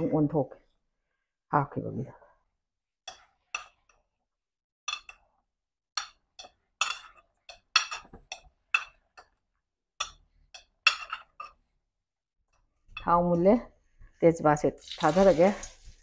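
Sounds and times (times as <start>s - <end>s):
ladle and spatula clinking on pot: 3.0s - 4.1s, 4.9s - 5.4s, 6.0s - 9.4s, 10.0s - 11.6s.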